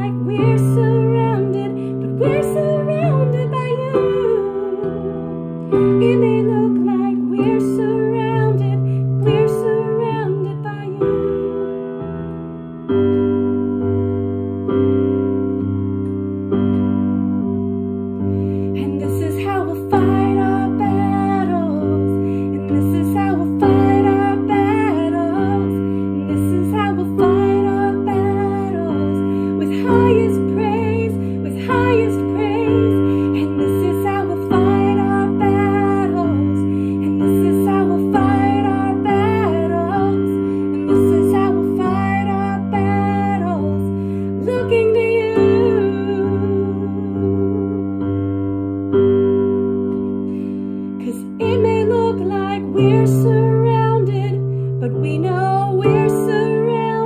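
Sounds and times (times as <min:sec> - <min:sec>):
woman singing: 0:00.0 - 0:12.2, 0:18.2 - 0:48.3, 0:50.9 - 0:57.0
piano chords: 0:00.0 - 0:57.0.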